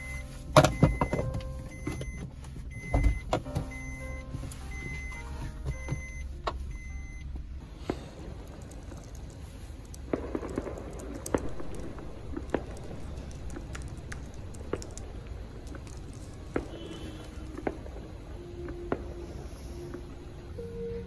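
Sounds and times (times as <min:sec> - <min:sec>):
car interior rumble: 0:00.0 - 0:21.0.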